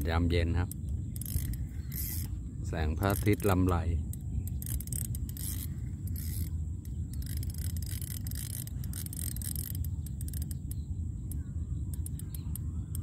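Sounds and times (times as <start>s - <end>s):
wind buffeting microphone: 0.0s - 13.0s
sharp clicks: 3.0s - 13.0s.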